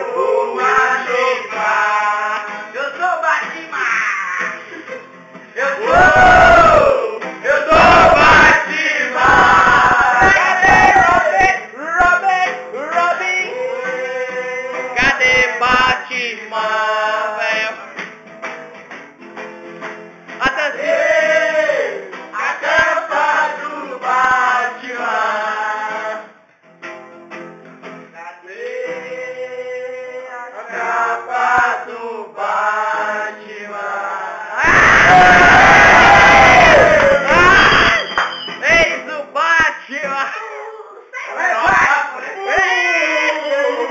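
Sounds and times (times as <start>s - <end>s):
men singing together: 0.0s - 4.9s, 5.6s - 18.0s, 20.4s - 26.4s, 28.2s - 38.1s
acoustic guitar: 0.0s - 43.9s.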